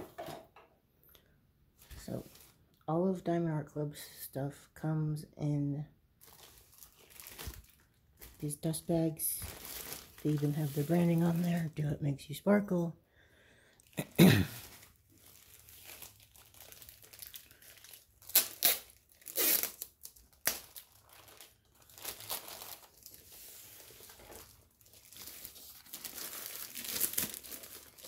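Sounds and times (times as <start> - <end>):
plastic bag crinkling: 6.2 - 12.0, 13.8 - 28.0.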